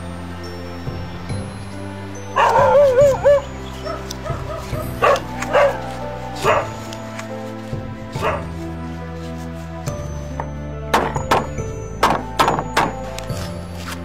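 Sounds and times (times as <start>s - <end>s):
background music: 0.0s - 14.0s
dog whining: 2.4s - 6.8s
dog yipping: 2.4s - 6.8s, 8.2s - 8.4s.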